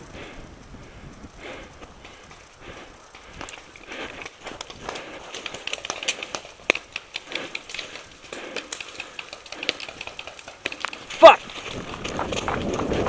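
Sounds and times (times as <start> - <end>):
brush crackling: 0.0 - 13.0
twig cracking: 1.7 - 12.8
footsteps crunching dry leaves: 10.3 - 13.0.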